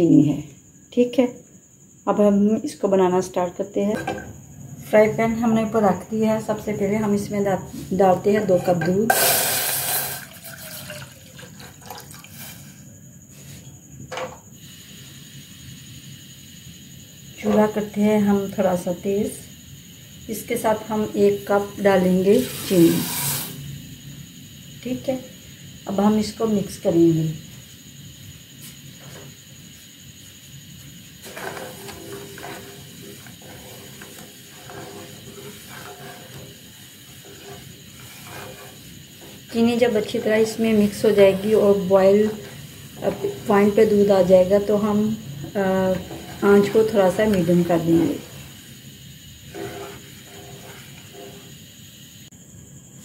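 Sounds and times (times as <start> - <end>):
wooden spatula scraping metal pan: 7.8 - 9.3, 31.2 - 51.6
milk pouring into metal saucepan: 9.2 - 12.4.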